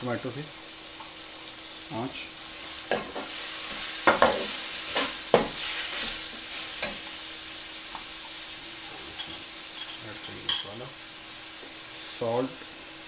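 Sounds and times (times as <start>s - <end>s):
tomatoes sizzling in oil: 0.0s - 13.0s.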